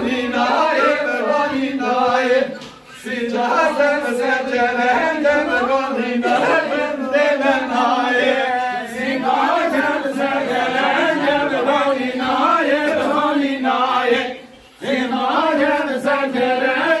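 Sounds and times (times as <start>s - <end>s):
men singing folk song: 0.0s - 17.0s.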